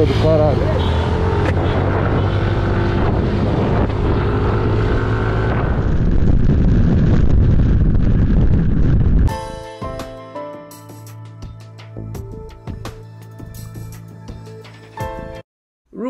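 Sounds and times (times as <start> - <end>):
wind buffeting on microphone: 1.6 - 9.3.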